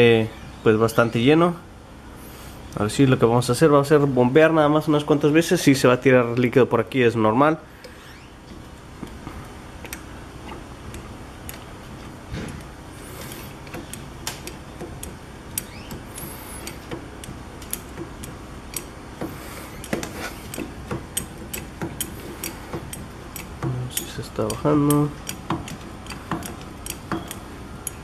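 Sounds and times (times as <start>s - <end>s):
floor jack pump clicking: 7.8s - 28.0s.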